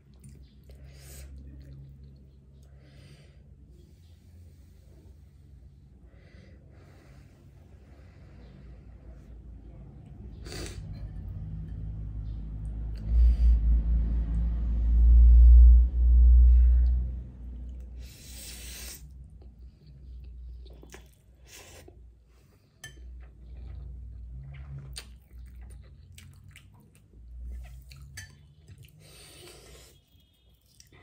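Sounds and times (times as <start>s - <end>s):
chewing with small clicks: 0.0s - 2.8s, 19.2s - 22.0s, 22.8s - 31.0s
loud low rumble: 10.1s - 17.8s.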